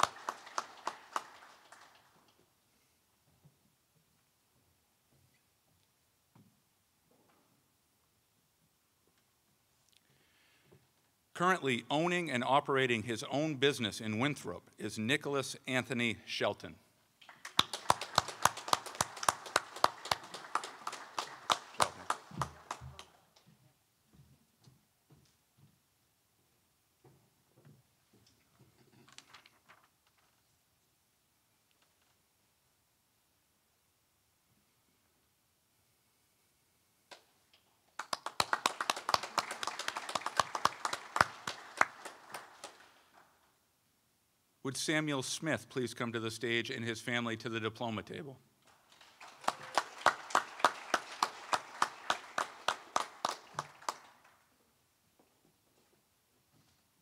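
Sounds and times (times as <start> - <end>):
small audience clapping: 0.0 - 2.5, 17.2 - 23.4, 37.9 - 43.4, 48.7 - 54.6
small group applauding: 0.0 - 2.5, 17.2 - 23.4, 37.9 - 43.4, 48.7 - 54.6.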